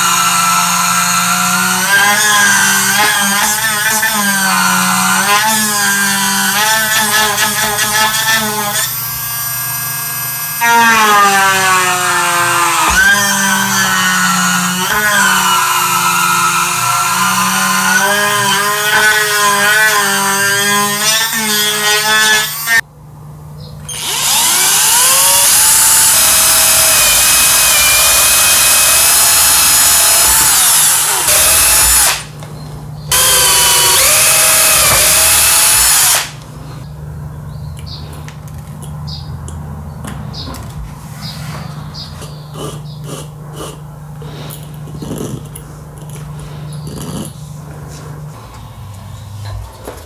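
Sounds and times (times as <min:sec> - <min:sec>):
power drill boring through plastic: 0:00.0 - 0:22.8, 0:23.9 - 0:32.3, 0:33.1 - 0:36.4.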